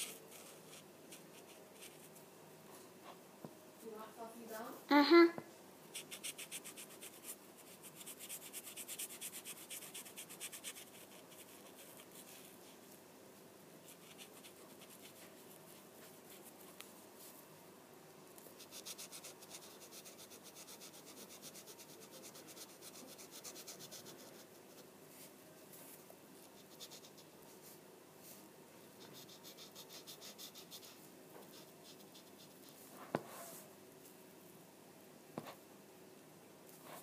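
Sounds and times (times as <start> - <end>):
marker rubbing on paper: 6.0 - 12.5, 13.9 - 16.6, 18.6 - 24.8, 29.0 - 33.6.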